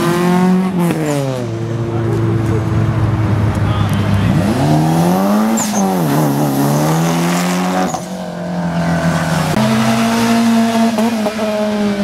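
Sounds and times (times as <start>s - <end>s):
car engine revving hard: 4.2s - 12.0s.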